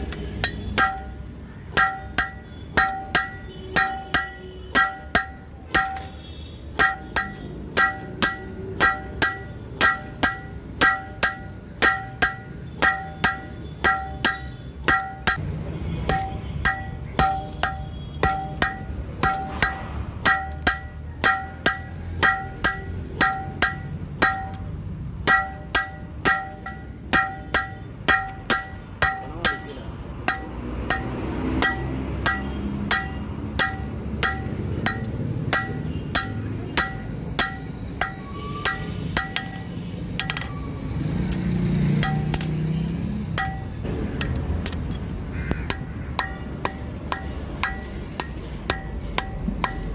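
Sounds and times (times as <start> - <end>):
hammer striking hot metal on anvil: 0.4 - 6.2, 6.8 - 15.4, 16.0 - 40.6, 41.9 - 42.6, 43.3 - 43.9, 45.7 - 49.9.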